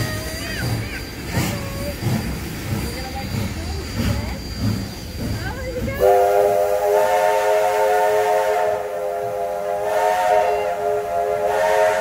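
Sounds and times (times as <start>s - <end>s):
steam hissing: 0.0s - 12.0s
steam locomotive chime whistle: 6.0s - 12.0s.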